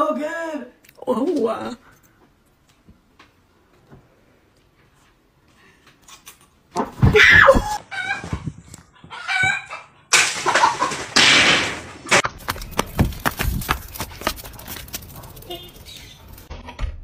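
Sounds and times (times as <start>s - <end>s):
chicken squawking and clucking: 7.4s - 11.0s.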